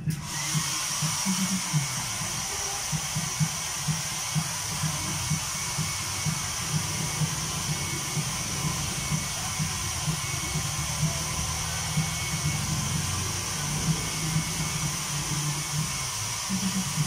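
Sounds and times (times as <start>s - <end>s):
hair dryer blowing: 0.0s - 17.0s.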